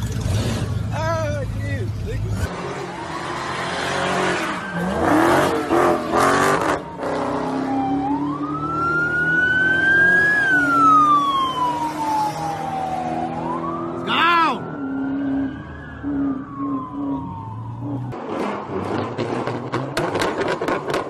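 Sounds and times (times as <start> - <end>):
car engine revving: 1.9 - 13.8, 18.1 - 21.0
police siren wailing: 2.8 - 18.2.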